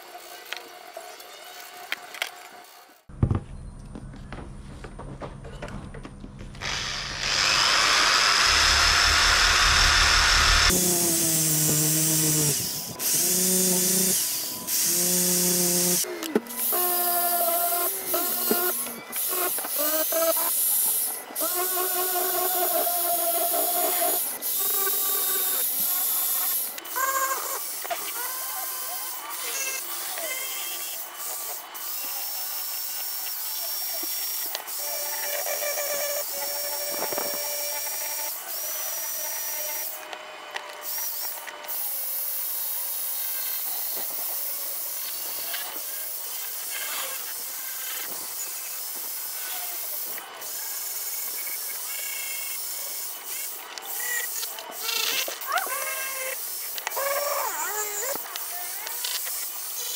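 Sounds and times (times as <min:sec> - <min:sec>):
electric drill motor whine: 0:06.6 - 0:59.9
buffing wheel hissing on metal: 0:06.7 - 0:16.0.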